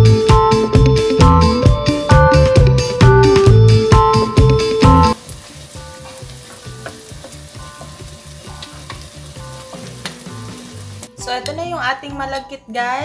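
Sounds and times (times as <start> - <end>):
background music: 0.0 - 13.0
rice sizzling in a wok: 5.1 - 11.1
spatula stirring in a wok: 5.2 - 11.1.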